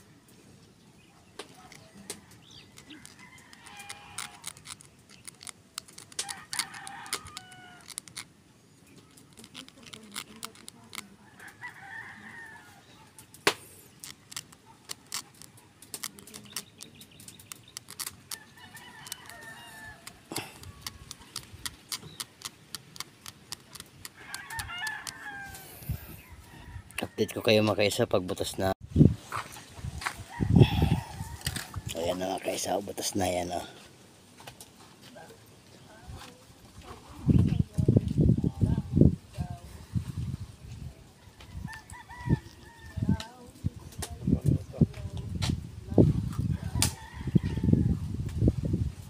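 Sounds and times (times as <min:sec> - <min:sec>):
needle clicking on eggshell: 0:01.4 - 0:11.7, 0:13.2 - 0:26.1.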